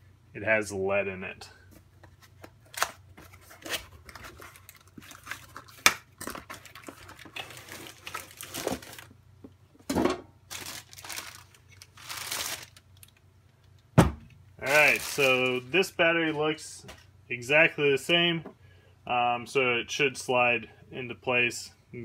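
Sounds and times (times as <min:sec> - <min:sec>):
packaging rustling and crinkling: 0:02.1 - 0:09.2, 0:10.5 - 0:13.2, 0:14.6 - 0:15.8.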